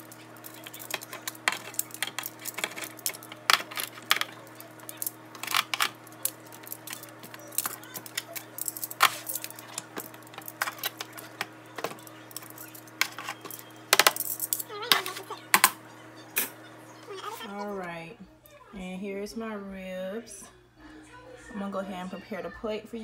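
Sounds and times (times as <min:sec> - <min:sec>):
metal tongs clacking on foil pan: 0:00.0 - 0:15.8
steady low hum: 0:00.0 - 0:23.0.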